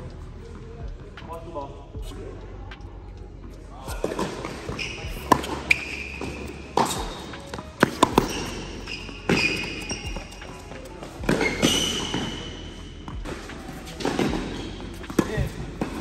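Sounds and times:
racket striking tennis ball: 0:04.0 - 0:16.0
tennis ball bouncing: 0:04.0 - 0:16.0
tennis shoes squeaking on court: 0:04.0 - 0:16.0.

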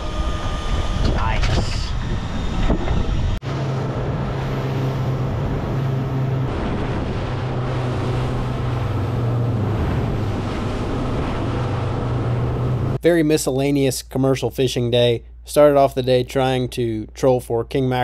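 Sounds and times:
sea noise: 0:00.0 - 0:13.0
wind buffeting microphone: 0:00.0 - 0:13.0
boat engine humming: 0:00.0 - 0:13.3.

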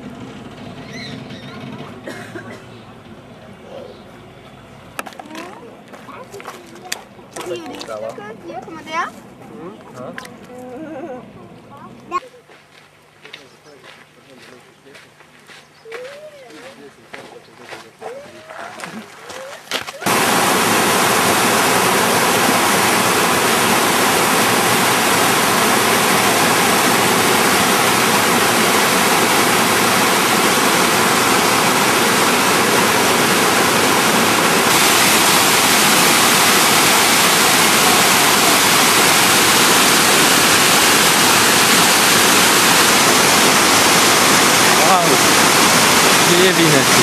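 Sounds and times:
water rushing over rocks: 0:20.0 - 0:47.0.

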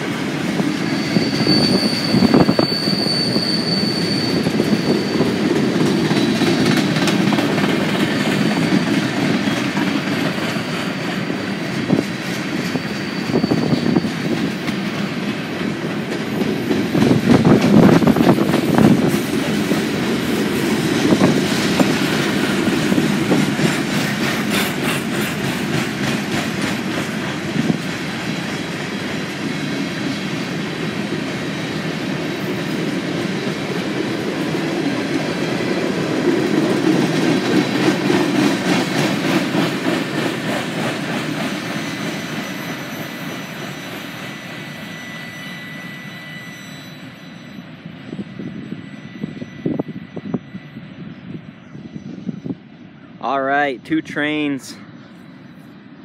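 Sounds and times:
freight train wheels rumbling: 0:00.0 - 0:56.0
wheels clacking over rail joints: 0:04.6 - 0:13.1, 0:14.0 - 0:43.1.

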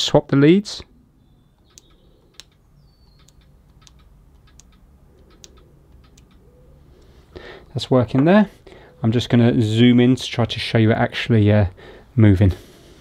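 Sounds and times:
solenoid clicking: 0:01.6 - 0:06.4.

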